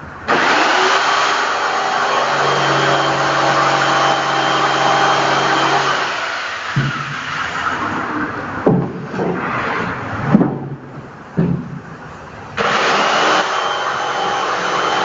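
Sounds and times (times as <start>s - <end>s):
power tool motor whining: 0.3s - 6.8s, 12.6s - 15.0s
sharp knock: 6.7s - 7.3s.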